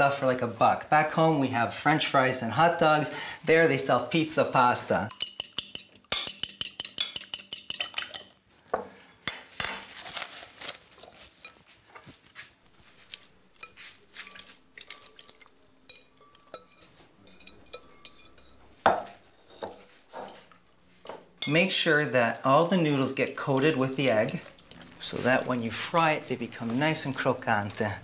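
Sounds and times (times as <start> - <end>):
fork clinking on glass bowls: 5.0 - 8.4, 13.0 - 21.6, 23.4 - 28.0
fork beating eggs in glass bowl: 5.1 - 8.4, 12.7 - 21.4, 23.4 - 28.0.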